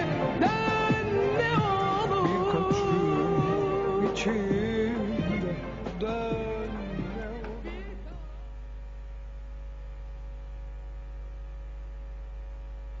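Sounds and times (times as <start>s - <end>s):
song with wavering vocals: 0.0s - 8.8s
steady low hum: 5.0s - 13.0s.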